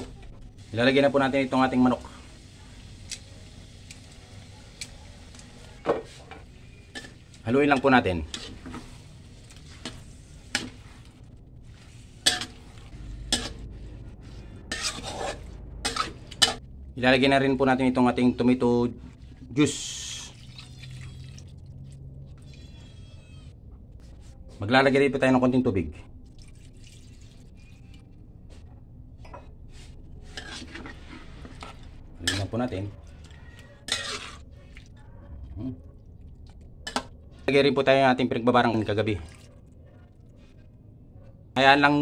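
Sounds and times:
food sizzling in wok: 0.6 - 4.5, 11.8 - 13.6, 14.7 - 16.6
spatula scraping wok: 5.2 - 16.7, 29.7 - 34.7
water pouring into wok: 20.0 - 21.8, 26.3 - 27.9.

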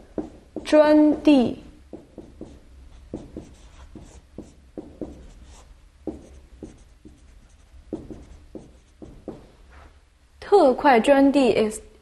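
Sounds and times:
marker writing on whiteboard: 0.0 - 9.5.

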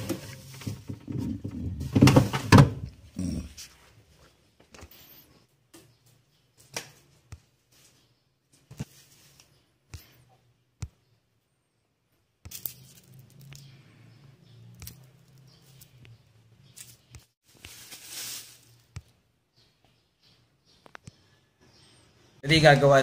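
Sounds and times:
plastic packaging crinkling: 17.4 - 18.9.

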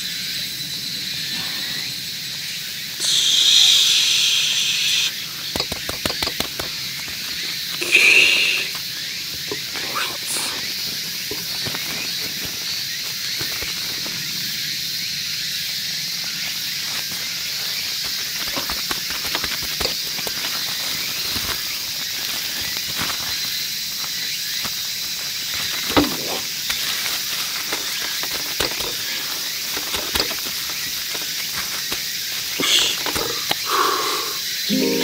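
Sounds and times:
steady high hiss: 1.0 - 5.7, 6.8 - 13.3, 30.5 - 35.0
cling film crinkling: 17.0 - 33.4.

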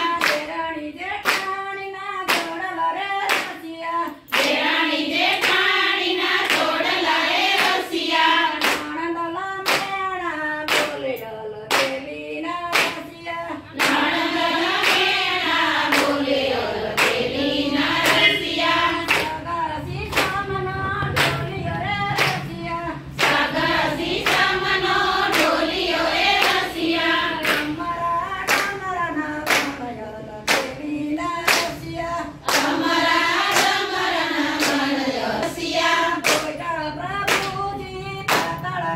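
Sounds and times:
women singing in unison: 0.0 - 38.9
hands clapping: 0.1 - 0.5, 1.2 - 1.6, 2.3 - 3.6, 4.3 - 4.6, 5.2 - 6.9, 7.5 - 9.0, 9.6 - 10.0, 10.7 - 11.0, 11.7 - 12.0, 12.7 - 13.1, 13.8 - 15.2, 15.9 - 16.2, 17.0 - 17.3, 19.0 - 19.4, 20.1 - 20.4, 21.1 - 21.5, 22.2 - 22.5, 23.2 - 23.5, 24.1 - 24.5, 25.2 - 25.6, 26.4 - 26.7, 27.4 - 27.8, 28.5 - 28.8, 29.4 - 29.8, 30.5 - 30.8, 31.4 - 31.8, 32.4 - 33.8, 35.4 - 36.6, 37.3 - 37.7, 38.3 - 38.7.

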